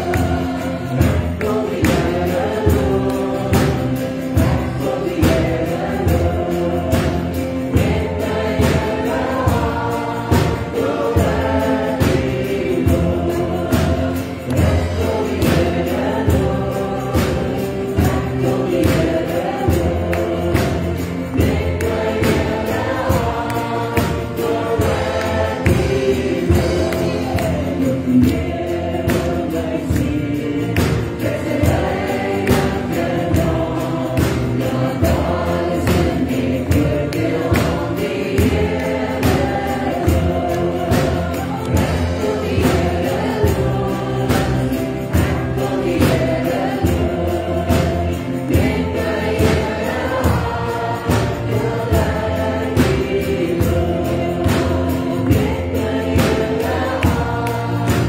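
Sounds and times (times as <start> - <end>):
band accompaniment: 0.0 - 58.0
group of voices singing: 0.0 - 58.0
steady drum beat: 0.0 - 58.0.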